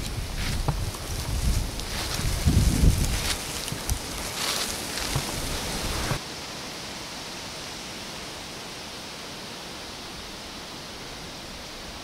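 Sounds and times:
footsteps through dry leaves: 0.0 - 6.2
steady rushing hiss: 0.0 - 12.0.

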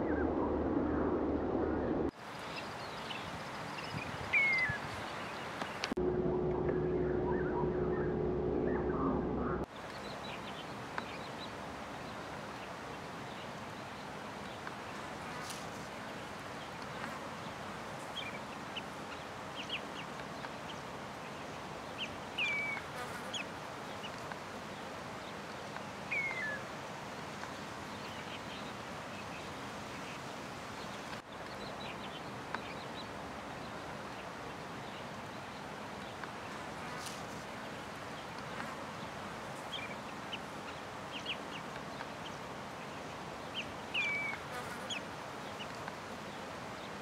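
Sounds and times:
downward-gliding bird calls: 6.3 - 9.7
steady background hiss: 9.6 - 47.0.

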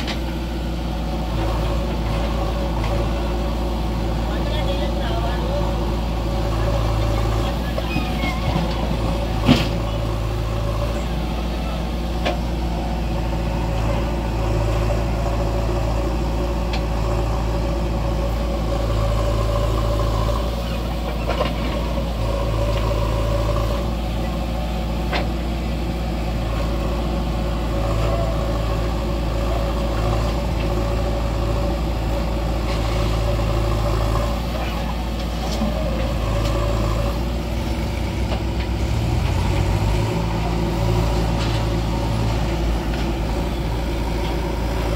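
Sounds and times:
diesel engine of backhoe loader: 0.0 - 44.9.

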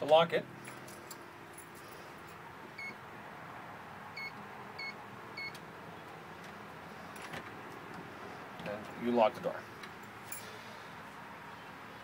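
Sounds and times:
keypad beeps: 4.2 - 5.6.

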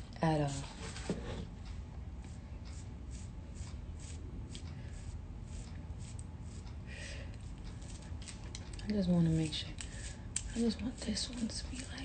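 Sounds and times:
brush scratching through hair: 2.3 - 6.8, 9.3 - 12.0.

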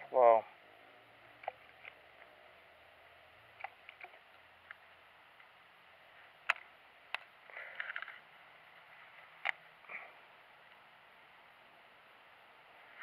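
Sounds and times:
gear clicking in plastic kayak: 3.6 - 4.8.

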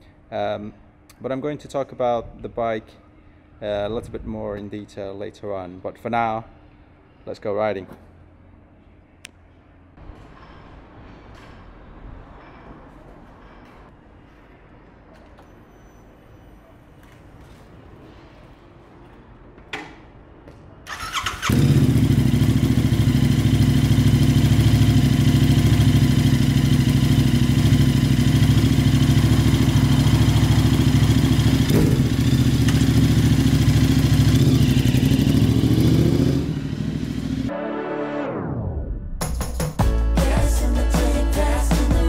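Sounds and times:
click: 9.2 - 9.4
motorcycle engine revving: 20.9 - 37.5
motorcycle engine idling loudly: 21.4 - 37.5.

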